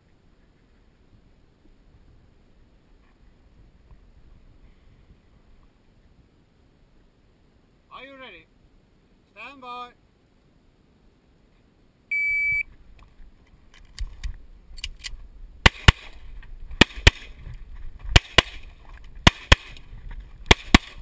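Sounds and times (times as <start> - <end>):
shot timer beep: 12.1 - 12.7
gun handling noise: 13.0 - 15.2
pistol shots: 15.6 - 16.2, 18.1 - 18.6, 19.2 - 19.8, 20.5 - 21.0.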